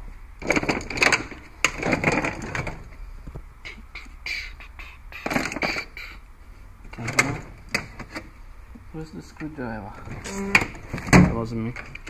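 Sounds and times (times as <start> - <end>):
hand tools rattling in metal drawer: 0.4 - 2.8.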